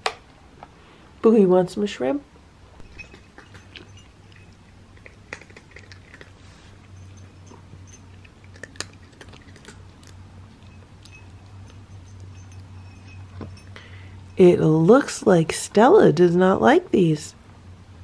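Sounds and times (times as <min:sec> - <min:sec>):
low hum: 0:02.5 - 0:16.4
cats crunching treats: 0:02.8 - 0:12.7.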